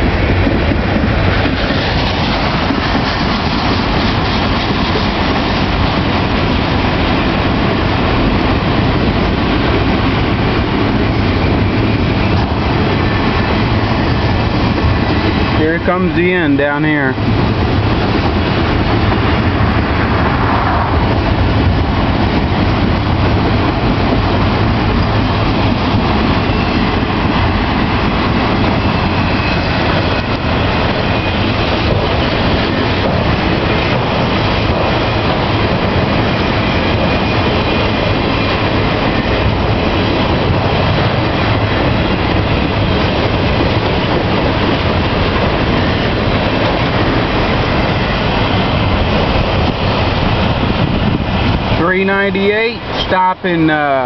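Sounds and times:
train wheels on rails: 0:00.0 - 0:54.0.

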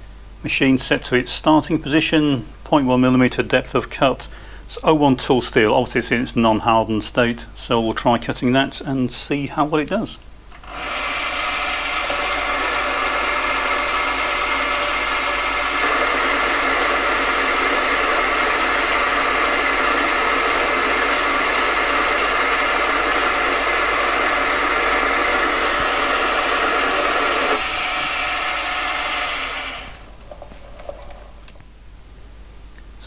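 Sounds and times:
lathe motor whining: 0:10.5 - 0:30.2.

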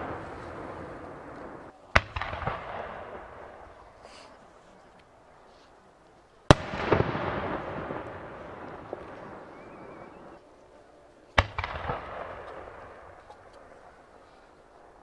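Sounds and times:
small firework pops: 0:00.0 - 0:03.8, 0:11.3 - 0:13.7
rolling echo: 0:00.0 - 0:05.2, 0:06.1 - 0:15.0.

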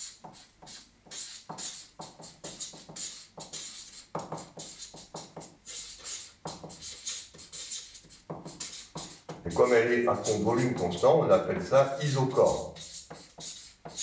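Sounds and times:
marker writing on paper: 0:00.0 - 0:14.0.

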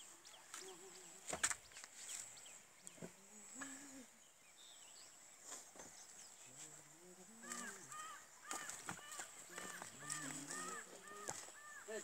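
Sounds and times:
faint distant voices: 0:06.3 - 0:12.0.

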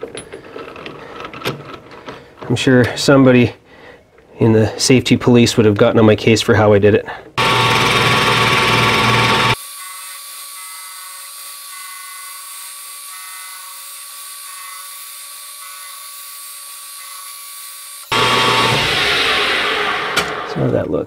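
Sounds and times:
metal lathe whine: 0:07.4 - 0:20.3
lathe machining noise: 0:07.4 - 0:20.5.

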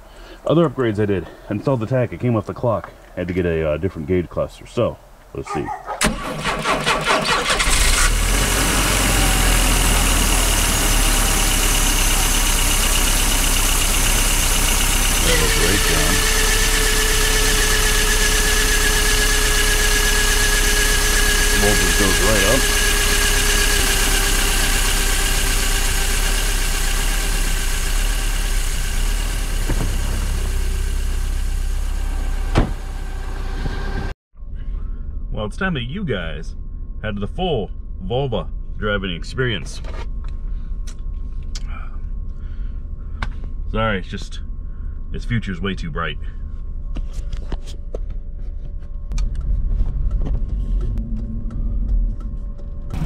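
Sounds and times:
car engine cold start: 0:05.9 - 0:34.1
starter motor cranking: 0:06.0 - 0:31.7.

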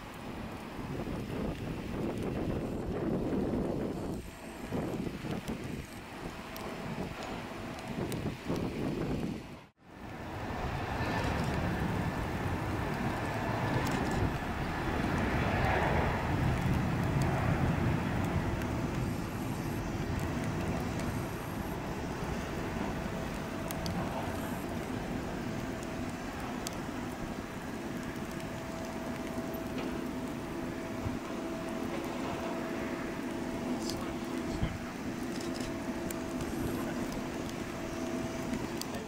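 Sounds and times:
faint steady whine: 0:00.0 - 0:39.0
vehicle rumble: 0:00.6 - 0:39.0.

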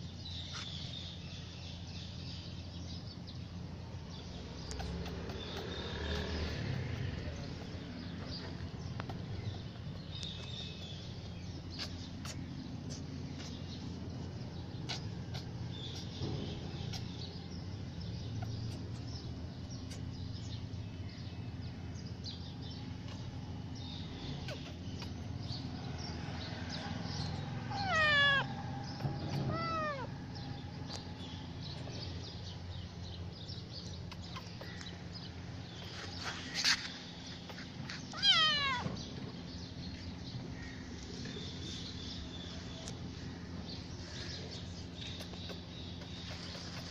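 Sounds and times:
low outdoor rumble: 0:00.0 - 0:46.9
kitten meowing: 0:27.7 - 0:30.1, 0:38.1 - 0:39.0.

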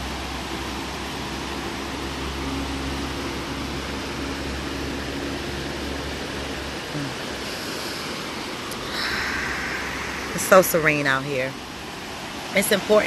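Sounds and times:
river rapids rushing: 0:00.0 - 0:13.0
low rumble: 0:08.0 - 0:12.6.

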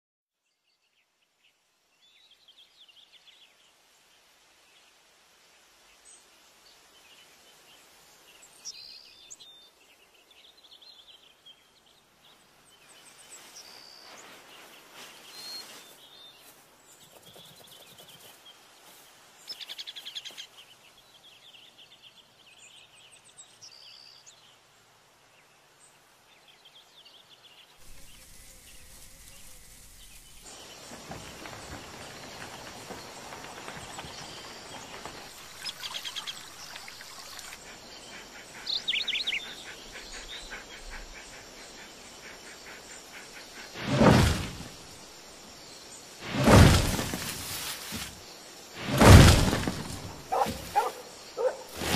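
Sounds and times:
dense wildlife sounds: 0:00.4 - 0:51.9
birds chirping and trilling: 0:26.4 - 0:51.9.

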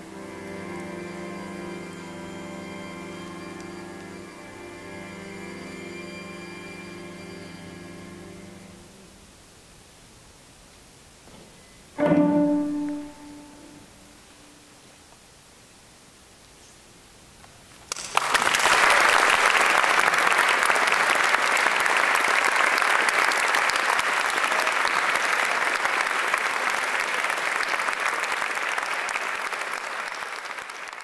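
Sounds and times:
audience applause: 0:17.9 - 0:31.0.

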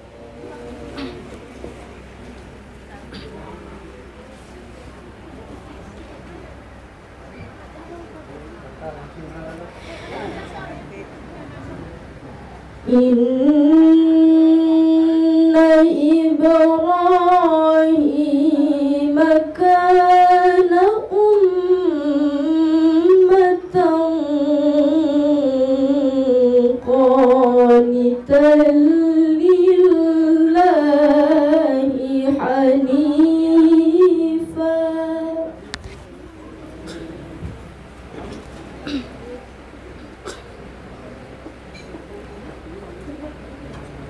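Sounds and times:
woman chanting into microphone: 0:12.8 - 0:35.6.

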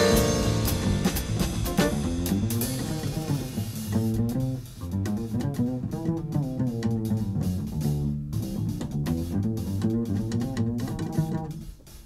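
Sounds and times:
plucked double bass: 0:00.0 - 0:11.8
drums: 0:00.0 - 0:12.0
jazz small group playing: 0:00.0 - 0:12.0.

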